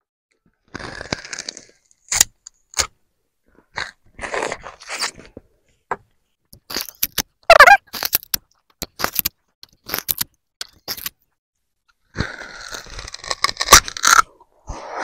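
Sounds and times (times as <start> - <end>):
sugarcane crunching and cracking: 0.5 - 5.4, 6.6 - 11.2, 12.2 - 14.5.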